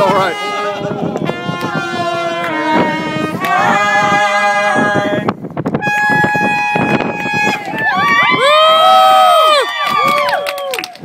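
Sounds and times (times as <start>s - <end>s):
trumpet holding long notes: 0.0s - 7.8s.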